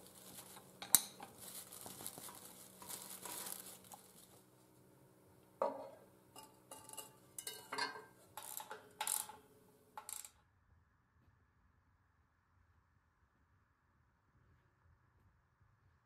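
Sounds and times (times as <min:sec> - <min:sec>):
guard cover clanking: 0:05.6 - 0:10.3.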